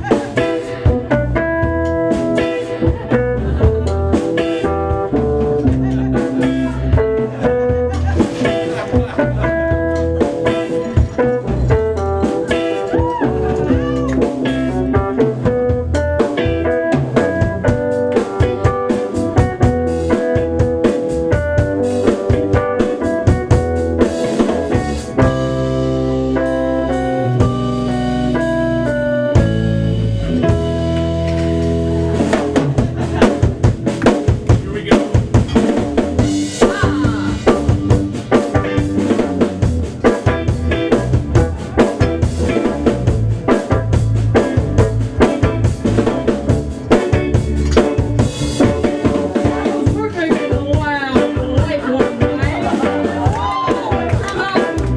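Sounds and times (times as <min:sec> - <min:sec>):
drum kit: 0:00.0 - 0:54.9
electric bass: 0:00.0 - 0:54.9
electric guitar: 0:00.0 - 0:54.9.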